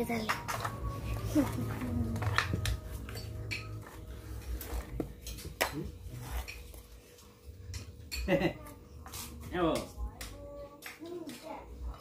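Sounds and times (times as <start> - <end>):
cutlery clinking on plates: 2.2 - 6.8, 7.7 - 8.5.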